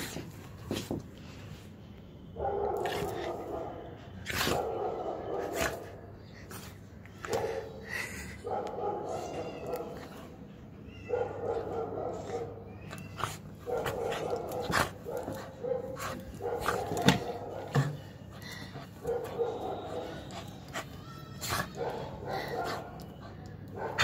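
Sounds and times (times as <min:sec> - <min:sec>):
puppy play-growling: 0:02.7 - 0:03.4, 0:11.5 - 0:24.0
puppy barks and yips: 0:11.0 - 0:17.8.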